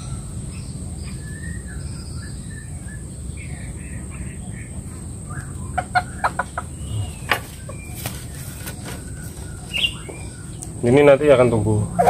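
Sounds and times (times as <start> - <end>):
chicken clucking: 4.1 - 10.6.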